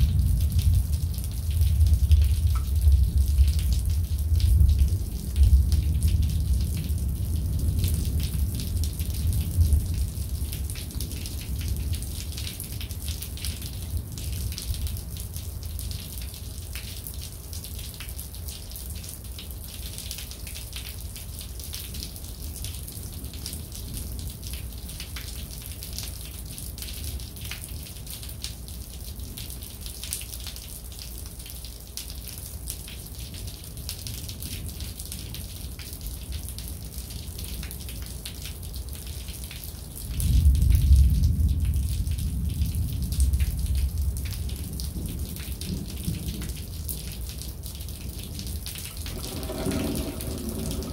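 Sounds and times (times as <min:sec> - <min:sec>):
low rumble of thunder: 0:00.0 - 0:16.9, 0:40.0 - 0:50.9
rain falling: 0:00.0 - 0:50.9.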